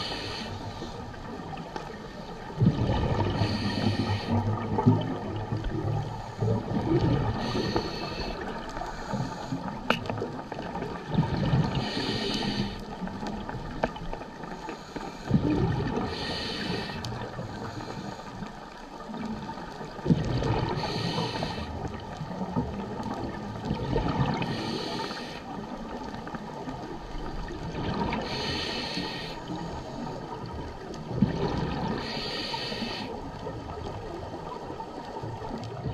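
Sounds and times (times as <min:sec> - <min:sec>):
low underwater rumble: 0:00.0 - 0:12.2
exhaled bubbles underwater: 0:00.0 - 0:14.4, 0:15.2 - 0:18.0, 0:19.0 - 0:35.9.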